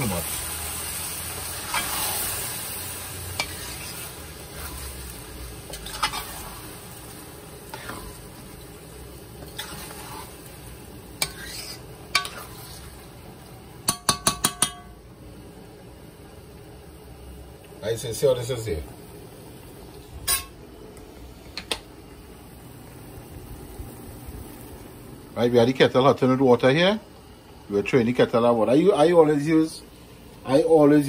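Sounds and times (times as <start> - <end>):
light sizzling: 0.0 - 31.0
metal spoon scraping rice in pot: 9.4 - 10.3, 11.2 - 12.9
spoon tapping metal pot: 13.8 - 15.0.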